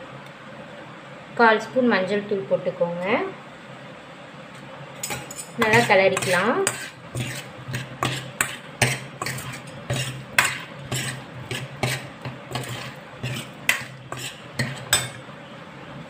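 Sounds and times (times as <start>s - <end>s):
spoon scraping and knocking pan: 5.0s - 15.3s.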